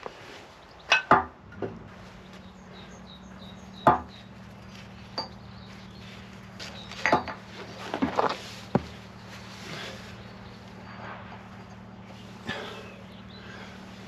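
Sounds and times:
metal clunks and knocks: 0:00.9 - 0:01.8.

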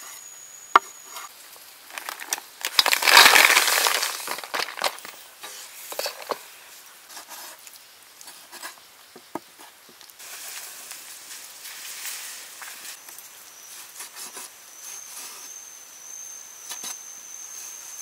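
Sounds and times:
faint steady hiss: 0:00.0 - 0:18.0
snails sizzling in a hot wok: 0:01.7 - 0:06.7.

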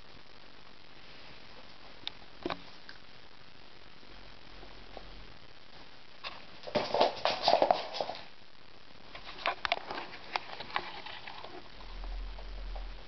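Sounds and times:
kitten paws scrabbling on floor: 0:06.6 - 0:08.3.

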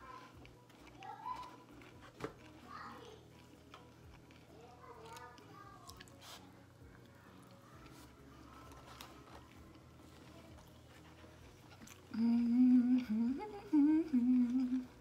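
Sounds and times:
faint chewing: 0:00.0 - 0:15.0
woman humming: 0:12.1 - 0:15.0.

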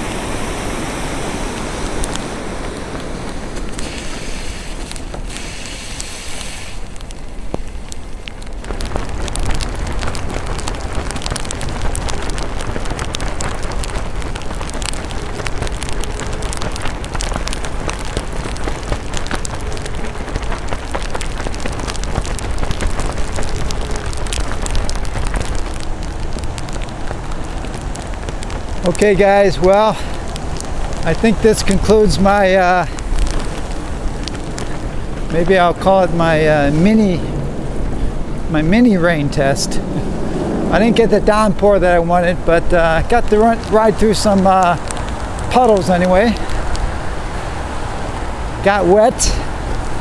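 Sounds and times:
rain hissing on wet pavement: 0:00.0 - 0:50.0
wind rumbling on microphone: 0:00.0 - 0:50.0.

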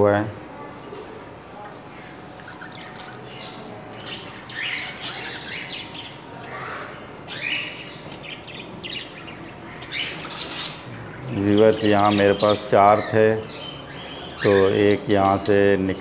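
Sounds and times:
budgerigars chirping: 0:02.0 - 0:16.0.

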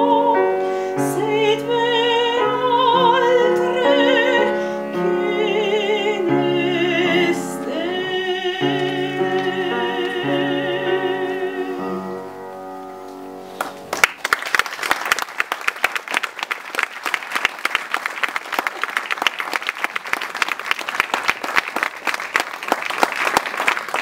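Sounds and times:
person singing: 0:00.0 - 0:12.2
piano chord: 0:00.0 - 0:14.0
audience applauding: 0:13.6 - 0:24.0.

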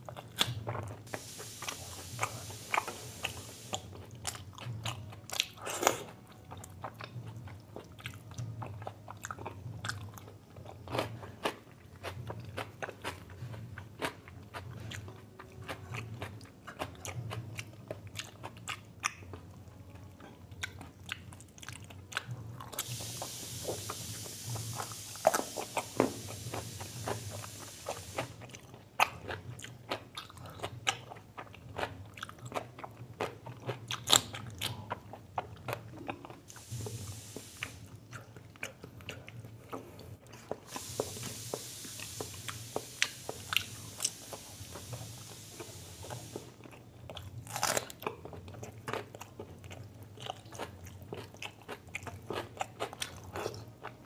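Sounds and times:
person chewing food: 0:00.0 - 0:54.0
steady low hum: 0:01.0 - 0:04.2, 0:22.8 - 0:28.6, 0:36.5 - 0:47.1
hissing noise: 0:01.1 - 0:04.0, 0:22.8 - 0:28.5, 0:36.5 - 0:38.0, 0:40.6 - 0:46.6.

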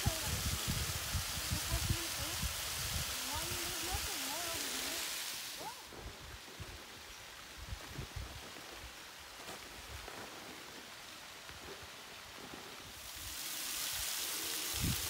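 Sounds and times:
wind buffeting microphone: 0:00.0 - 0:04.1, 0:14.6 - 0:15.0
distant waterfall rushing: 0:00.0 - 0:15.0.

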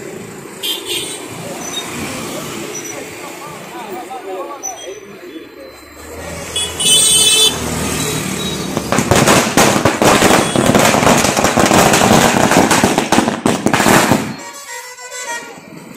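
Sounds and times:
firecrackers crackling: 0:06.8 - 0:14.9.

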